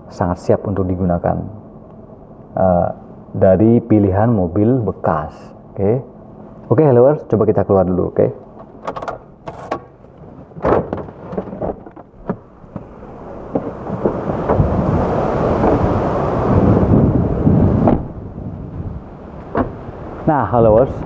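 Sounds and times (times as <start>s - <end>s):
car door unlatching and opening: 8.5s - 14.6s, 17.8s - 18.2s, 19.4s - 19.9s
wind rumbling on microphone: 10.3s - 21.0s.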